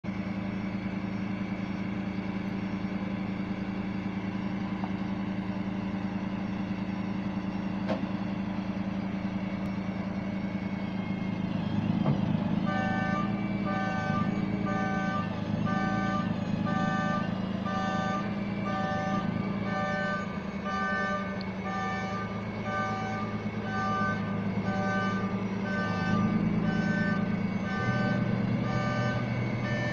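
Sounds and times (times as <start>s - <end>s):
truck engine running: 0.0s - 29.9s
backup alarm beeping: 9.6s - 29.9s.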